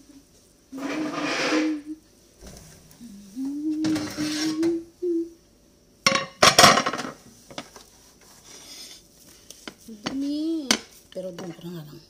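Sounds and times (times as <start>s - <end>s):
woman humming: 1.7s - 2.1s, 3.0s - 5.4s.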